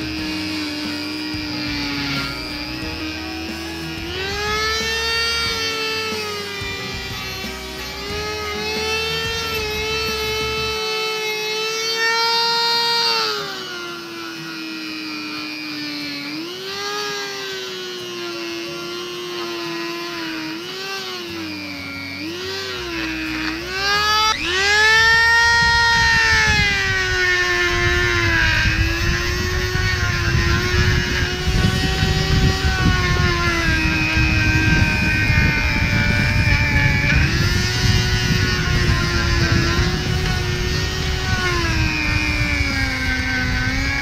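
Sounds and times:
rotary tool grinding metal: 0.0 - 44.0.

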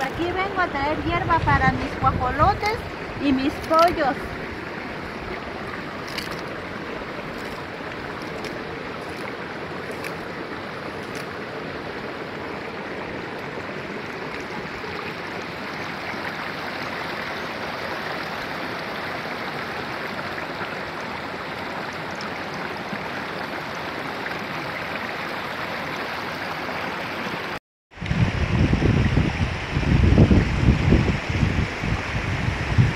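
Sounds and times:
wind rumble on microphone: 0.0 - 10.7, 28.0 - 32.9
stream running over stones: 0.0 - 32.9.

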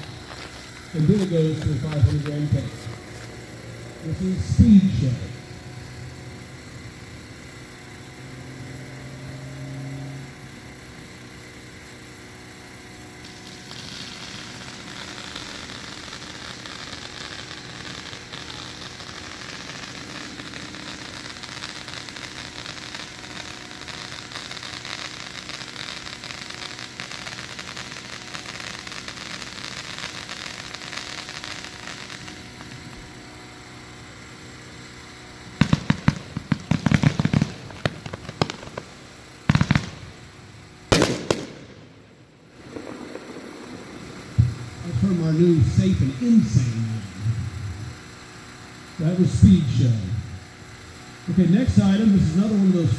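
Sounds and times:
firework hissing crackle: 0.0 - 52.9
firework shot bangs: 35.6 - 40.2, 40.9 - 44.8.

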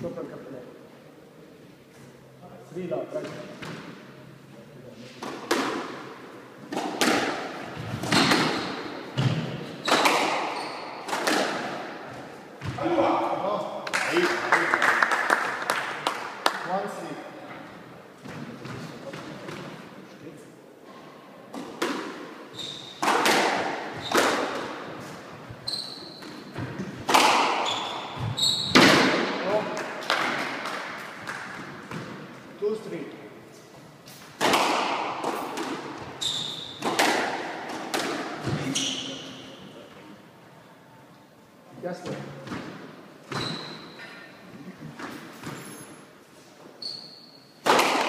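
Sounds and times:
squash ball hits echoing: 5.2 - 14.4, 21.5 - 25.0, 25.7 - 32.3, 34.3 - 39.6, 47.6 - 48.0
shoes squeaking on wooden floor: 7.7 - 11.1, 22.5 - 23.1, 23.9 - 24.4, 25.0 - 26.9, 27.6 - 28.9, 36.0 - 36.9, 43.3 - 44.2, 45.0 - 46.0, 46.6 - 47.5.

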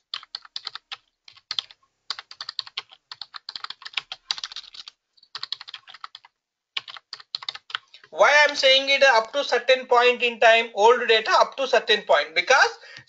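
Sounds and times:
fast typing on keyboard: 0.0 - 9.5.

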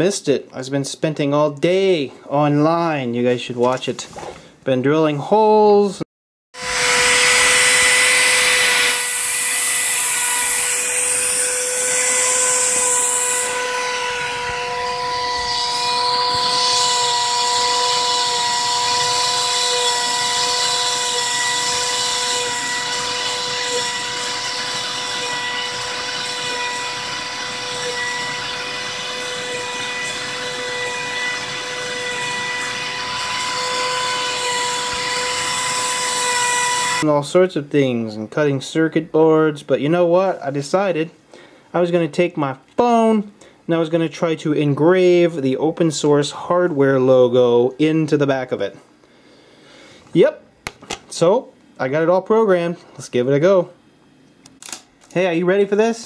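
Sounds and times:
motor spindle high whine: 6.6 - 37.0.

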